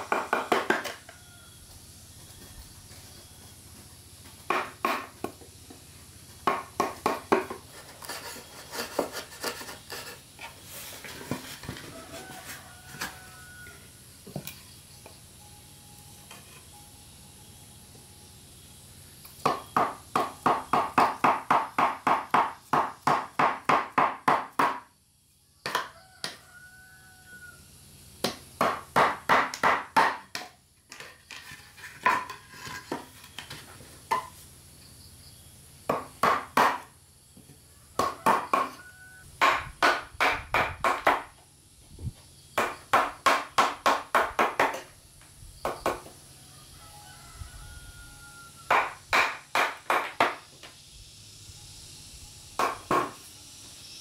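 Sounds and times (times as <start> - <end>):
rooster crowing faintly: 11.2 - 14.1, 25.5 - 27.7, 37.6 - 39.3, 46.3 - 49.0
hammer blows on wood: 48.7 - 50.4.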